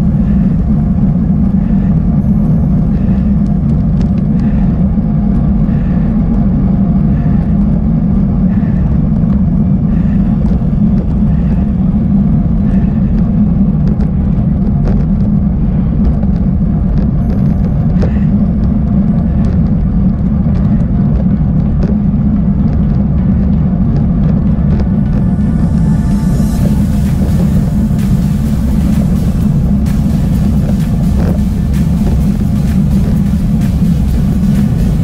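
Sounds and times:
tyre and frame rumble: 0.0s - 35.0s
wind on microphone: 0.0s - 35.0s
bike clicks and rattles: 12.7s - 25.2s.

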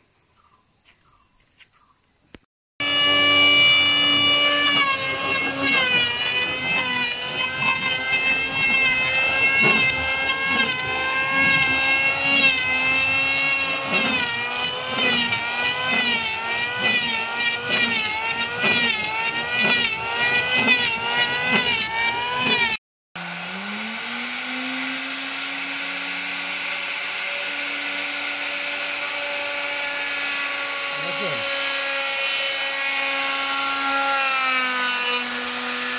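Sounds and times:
motor spinning up with whine: 2.8s - 32.8s
power tool motor running: 2.8s - 35.9s.

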